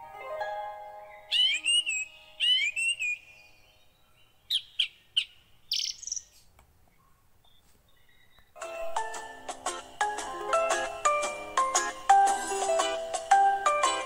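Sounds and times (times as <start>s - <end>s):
chime-like background music: 0.0s - 1.3s
bird chirping: 0.9s - 12.3s.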